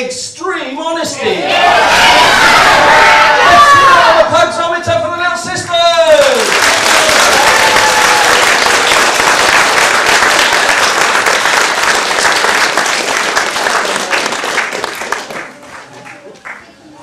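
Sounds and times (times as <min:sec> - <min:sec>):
audience applauding: 0:06.2 - 0:16.7.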